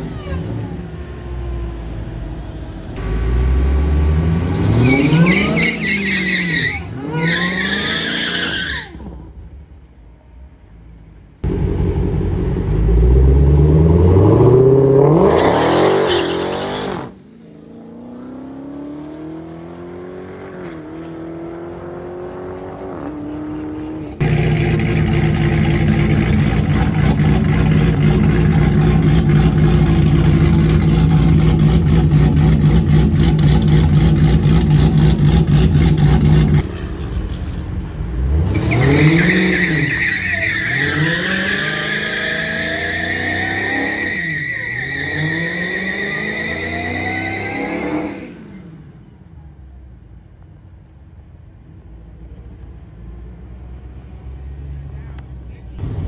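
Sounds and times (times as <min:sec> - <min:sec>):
car engine pulling away: 0:00.0 - 0:09.8, 0:11.4 - 0:49.1
tyre squeal: 0:04.6 - 0:09.3, 0:15.3 - 0:17.2, 0:38.3 - 0:48.4
car engine idling: 0:09.4 - 0:14.1, 0:24.2 - 0:38.1
car engine revving: 0:11.4 - 0:36.9.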